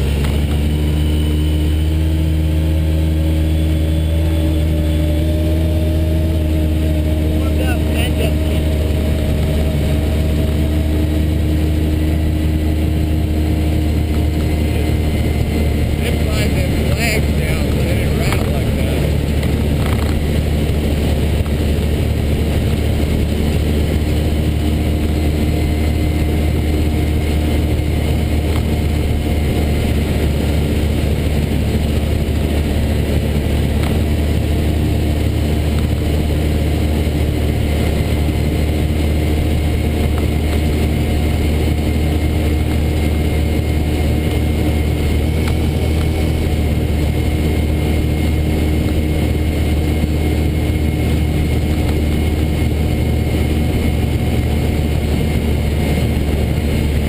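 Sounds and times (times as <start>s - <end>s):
rumbling road noise: 0.0s - 57.0s
vehicle engine drone: 0.0s - 57.0s.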